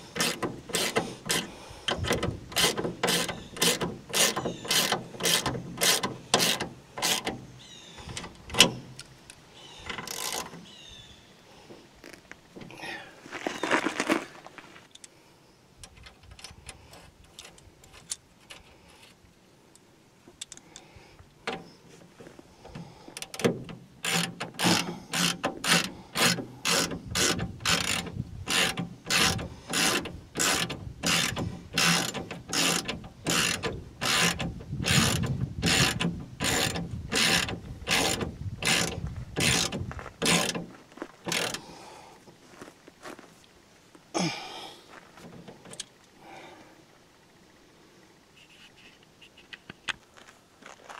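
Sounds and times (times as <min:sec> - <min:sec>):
ratchet wrench clicking: 0:00.1 - 0:07.4, 0:09.9 - 0:10.5, 0:23.2 - 0:40.6, 0:41.3 - 0:41.6.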